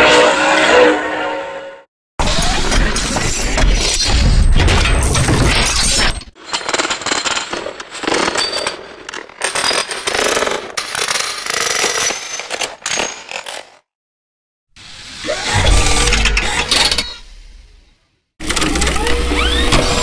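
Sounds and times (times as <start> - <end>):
packaging machinery clattering: 18.4 - 20.0.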